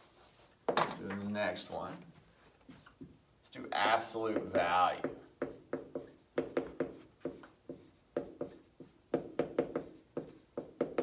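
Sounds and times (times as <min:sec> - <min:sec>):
marker writing on whiteboard: 0:02.7 - 0:11.0.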